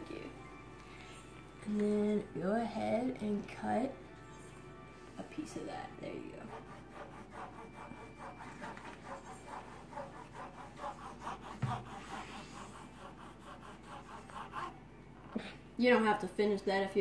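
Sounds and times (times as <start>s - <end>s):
knife sawing through leather: 6.4s - 14.7s.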